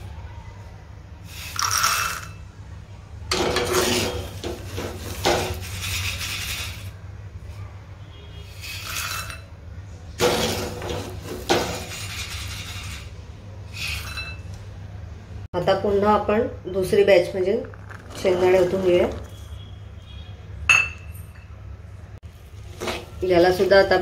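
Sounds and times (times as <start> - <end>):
peanuts and salt rattling in strainer: 1.3 - 2.4, 17.6 - 19.3.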